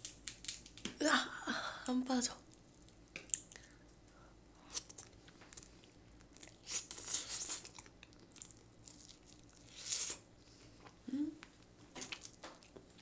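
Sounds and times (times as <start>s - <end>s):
crab shell cracking: 0.0s - 1.0s.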